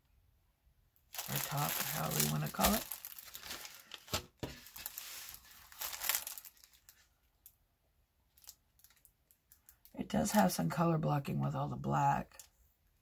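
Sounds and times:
plastic film crinkling: 0:01.1 - 0:07.5, 0:08.3 - 0:10.0.

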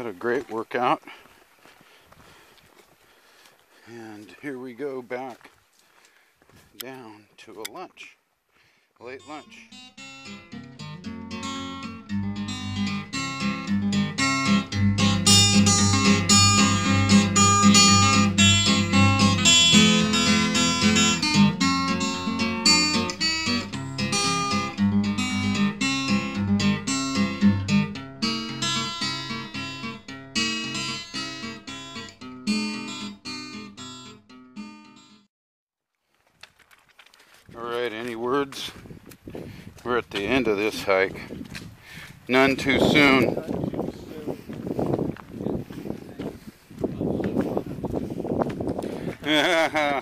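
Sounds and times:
acoustic guitar music: 0:09.0 - 0:35.3, 0:42.3 - 0:45.8.

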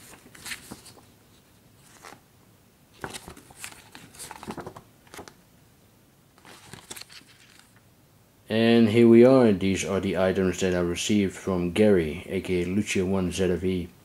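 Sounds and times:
magazine pages rustling: 0:00.0 - 0:02.2, 0:03.0 - 0:05.4, 0:06.4 - 0:07.8.

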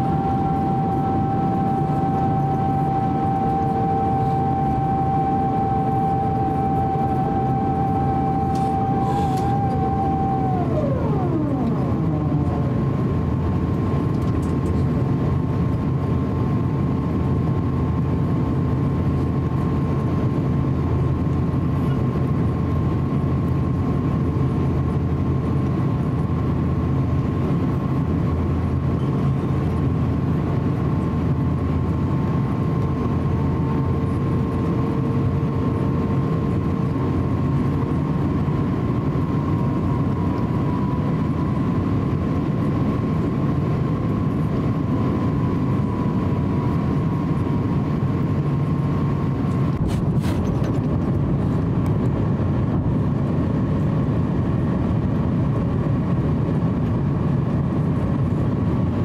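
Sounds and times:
whine dropping in pitch: 0:00.0 - 0:14.7, 0:31.5 - 0:49.8
airplane cabin roar: 0:00.0 - 0:59.0.

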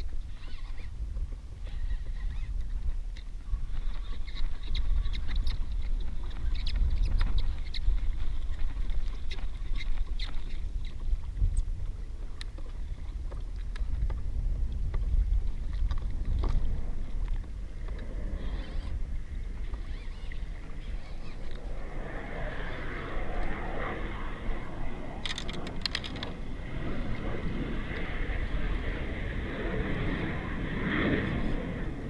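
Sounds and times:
water lapping against hull: 0:00.0 - 0:21.8
wind buffeting microphone: 0:00.0 - 0:32.0
fishing gear clicks and knocks: 0:25.2 - 0:26.4.

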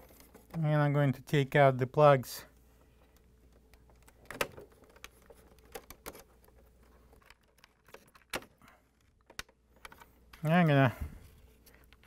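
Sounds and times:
plastic plugs clicking and rattling: 0:02.8 - 0:10.5.

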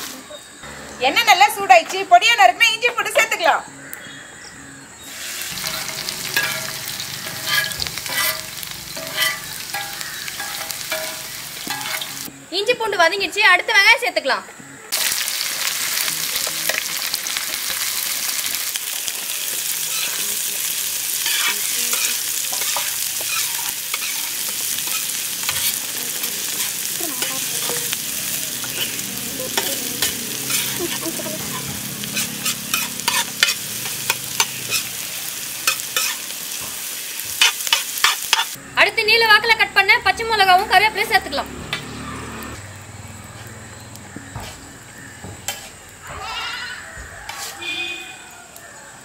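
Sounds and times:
woman speaking: 0:01.0 - 0:03.6, 0:25.8 - 0:28.0, 0:29.1 - 0:30.2, 0:38.8 - 0:41.5
onions sizzling in hot oil: 0:05.0 - 0:12.7, 0:14.9 - 0:48.6
spatula scraping a pan: 0:05.1 - 0:12.3, 0:16.4 - 0:35.0, 0:35.6 - 0:38.6, 0:44.3 - 0:44.7, 0:45.4 - 0:48.1.

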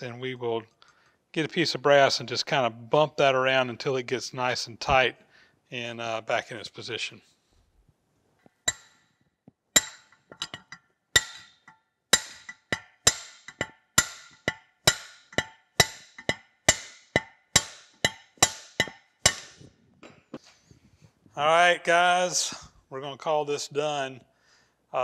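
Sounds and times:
metal taps with metallic ring: 0:09.8 - 0:19.7.

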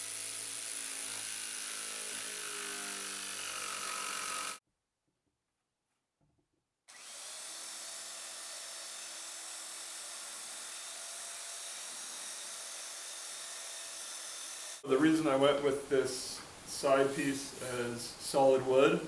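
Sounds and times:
electric sander sanding wood: 0:00.0 - 0:04.6, 0:06.9 - 0:14.8.

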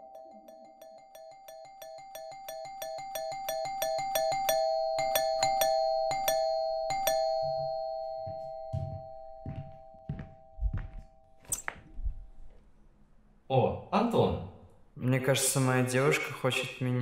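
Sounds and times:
steady two-note tone: 0:00.0 - 0:11.6
electronic chimes: 0:00.0 - 0:11.8
uneven rings: 0:00.0 - 0:12.2.

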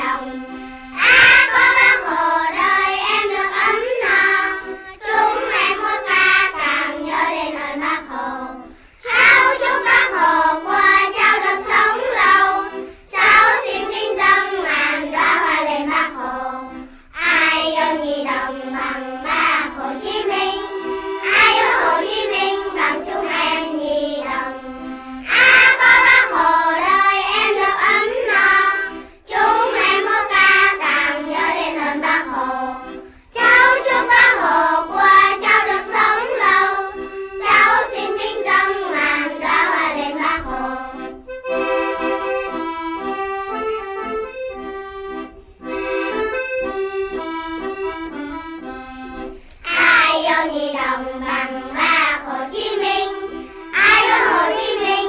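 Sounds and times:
child singing: 0:00.0 - 0:41.1, 0:49.6 - 0:55.0
instrumental accompaniment: 0:00.0 - 0:55.0.

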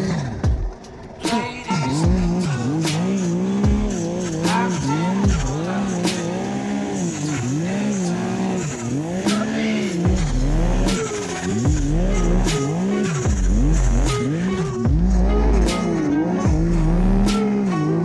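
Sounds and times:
snowmobile engine revving: 0:01.2 - 0:18.0
low rumble: 0:14.9 - 0:15.7, 0:16.5 - 0:17.4.

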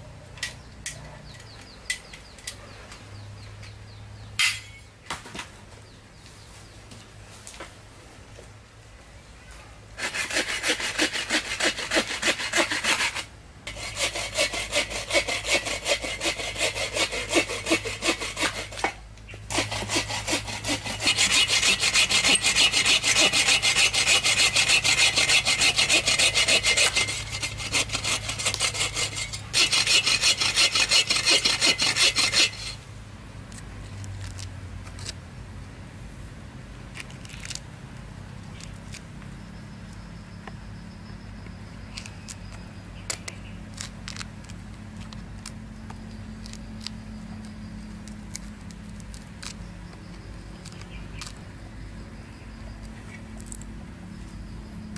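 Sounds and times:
bow saw cutting a log: 0:10.0 - 0:32.8
knife scraping wood: 0:10.0 - 0:32.8, 0:52.7 - 0:53.7.

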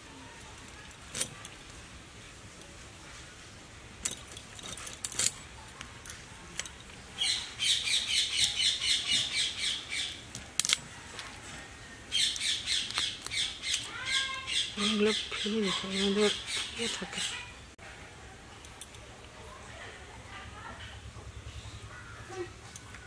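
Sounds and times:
clicks of prawns being cut: 0:00.4 - 0:01.8, 0:10.2 - 0:11.6, 0:12.2 - 0:14.3
bird chattering: 0:07.2 - 0:10.2, 0:12.1 - 0:17.6.

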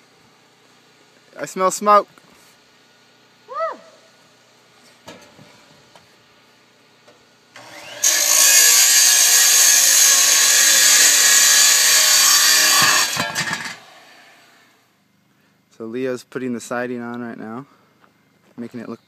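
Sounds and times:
power saw cutting metal: 0:07.6 - 0:14.6.

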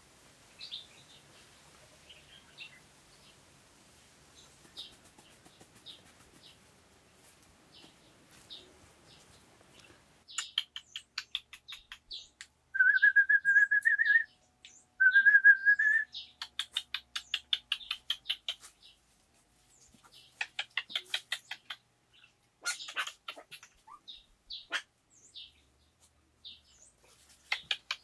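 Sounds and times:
birds chirping: 0:07.6 - 0:19.1, 0:19.7 - 0:28.0.

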